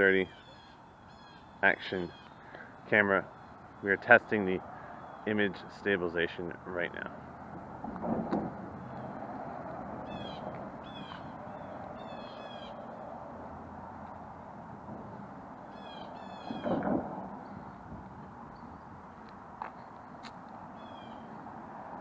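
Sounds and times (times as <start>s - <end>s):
steady background noise: 0.0s - 22.0s.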